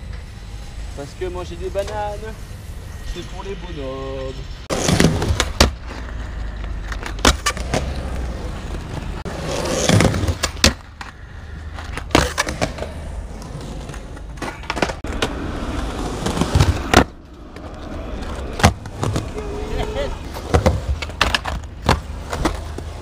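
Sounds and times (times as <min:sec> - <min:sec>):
skateboard wheels rolling on concrete: 0:00.0 - 0:23.0
skateboard clacks: 0:04.9 - 0:09.2, 0:09.8 - 0:13.0, 0:13.8 - 0:19.6, 0:20.2 - 0:23.0.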